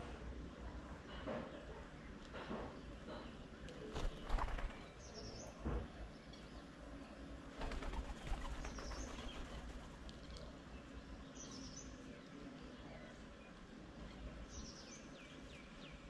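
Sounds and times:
wing flutters and scuffling: 3.8 - 5.0, 7.5 - 10.6.

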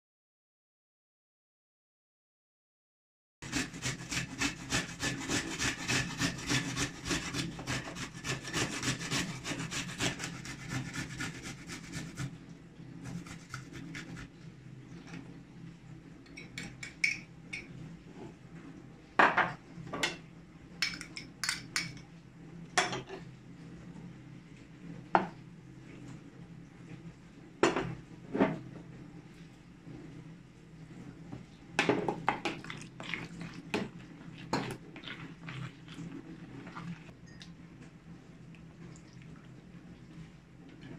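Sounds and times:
grating on metal grater: 3.4 - 12.3, 13.0 - 14.3
metal spoon clinking ceramic bowl: 16.3 - 17.7.

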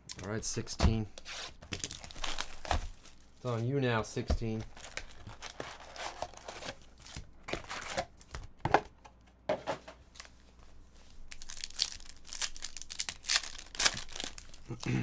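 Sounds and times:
wrapper tearing open: 1.7 - 3.2, 11.3 - 14.8
foil wrappers crinkling: 1.7 - 3.7, 4.4 - 8.3, 11.2 - 14.8.

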